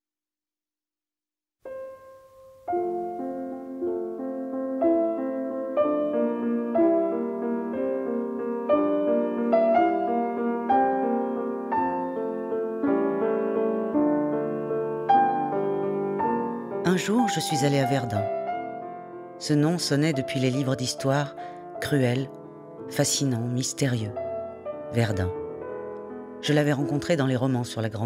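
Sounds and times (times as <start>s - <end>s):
slow gentle piano music: 1.6s - 28.0s.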